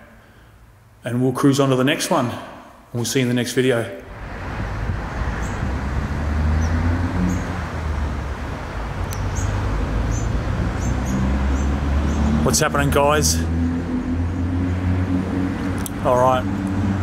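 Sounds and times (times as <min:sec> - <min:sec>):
road traffic rumble: 0:04.0 - 0:17.0
high bird chirps: 0:09.0 - 0:12.4.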